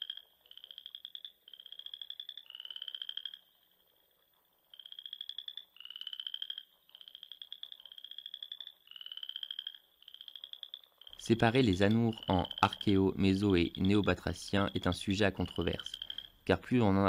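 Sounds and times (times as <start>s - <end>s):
frog calling in pulsed trills: 0.0s - 17.0s.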